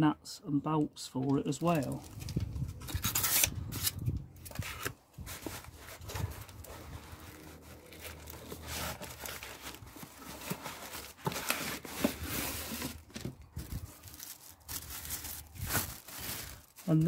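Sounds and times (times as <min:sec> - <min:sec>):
shredded cardboard rustling: 0:04.6 - 0:17.0
plastic bag crinkling: 0:05.2 - 0:17.0.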